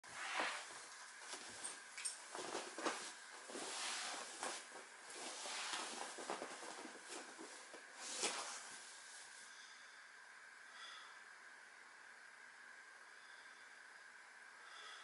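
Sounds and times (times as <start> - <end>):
rustling on vinyl mats: 0.0 - 9.6.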